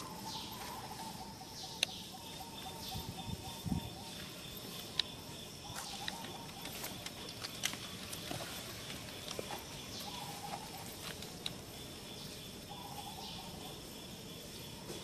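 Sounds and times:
light clicks and rustles: 5.8s - 11.7s.

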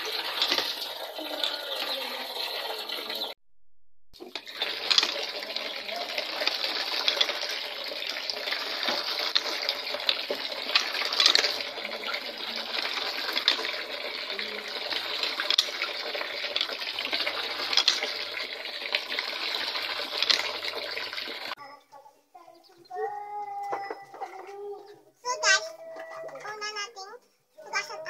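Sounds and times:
tap water pouring into basin: 0.0s - 3.4s, 4.2s - 21.6s.

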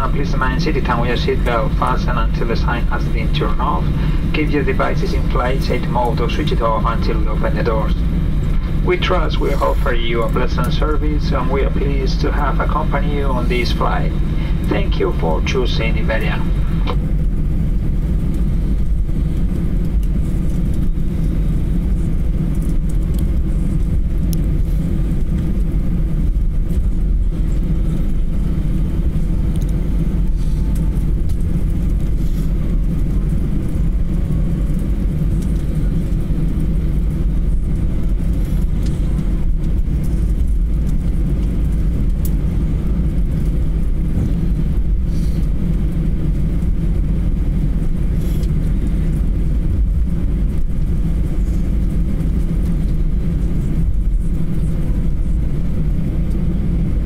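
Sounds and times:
aircraft engines idling: 0.0s - 57.0s
aircraft rolling on taxiway: 0.0s - 57.0s.

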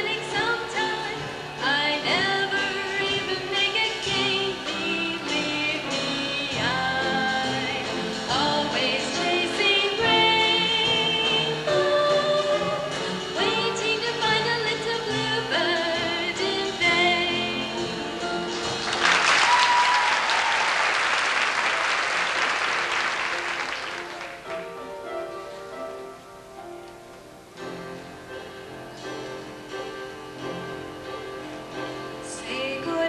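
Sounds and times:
woman singing: 0.0s - 18.3s, 32.2s - 33.0s
musical accompaniment: 0.0s - 33.0s
audience applause: 18.6s - 24.6s.

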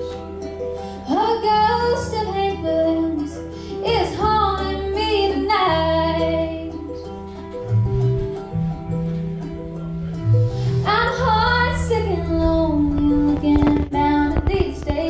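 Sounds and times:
woman singing: 1.0s - 7.2s, 10.8s - 15.0s
live band music: 6.8s - 15.0s.

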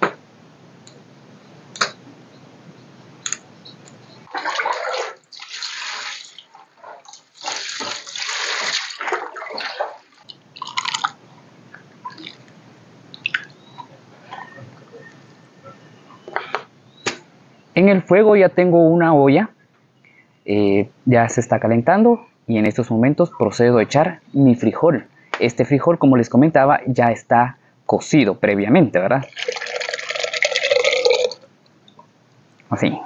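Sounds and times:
water splashing over leaves: 4.3s - 11.2s.

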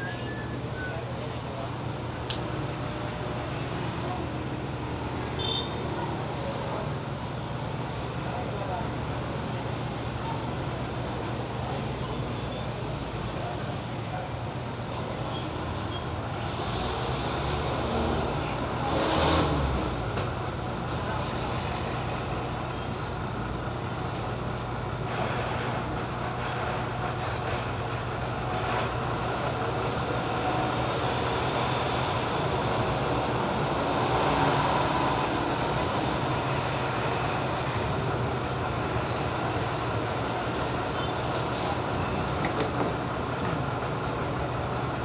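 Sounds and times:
traffic noise: 0.0s - 45.0s.

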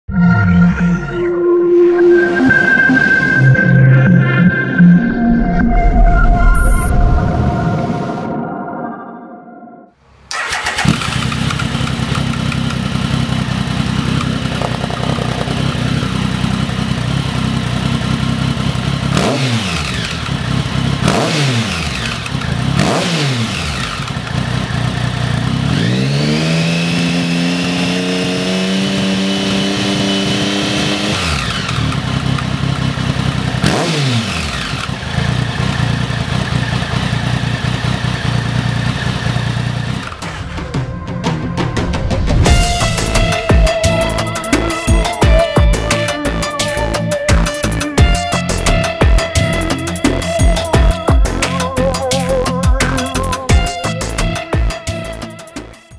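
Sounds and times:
motorcycle engine idling and revving: 10.3s - 55.9s.

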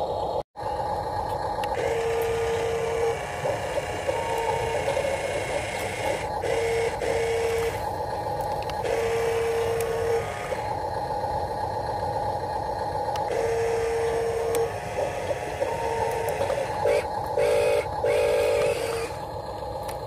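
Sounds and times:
small electric motor humming: 1.6s - 11.2s, 11.8s - 20.0s
electronic tone: 1.7s - 7.8s, 13.3s - 19.2s.

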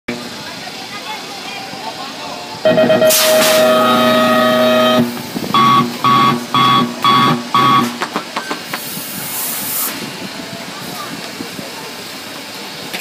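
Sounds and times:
steady electronic tone: 2.6s - 8.0s
short high beeps: 2.7s - 8.0s.

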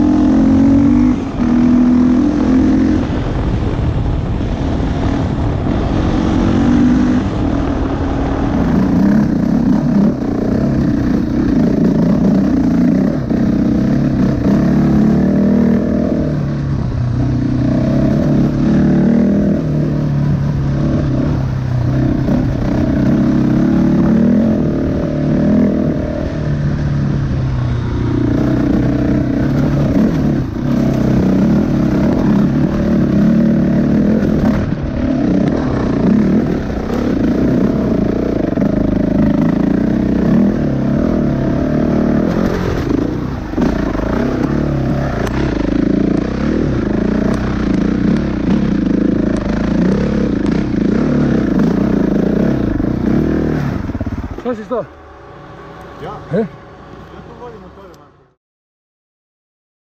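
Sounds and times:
motorcycle engine revving: 0.0s - 58.4s.

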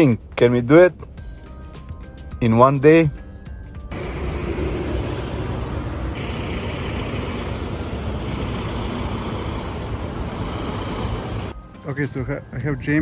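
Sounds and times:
cars driving past: 3.9s - 11.5s.

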